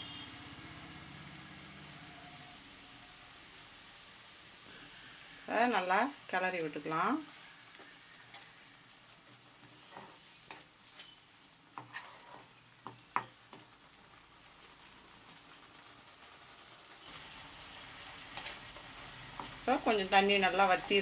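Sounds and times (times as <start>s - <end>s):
faint sizzling in pan: 0.0s - 21.0s
spatula scraping pan: 7.3s - 13.3s, 18.0s - 21.0s.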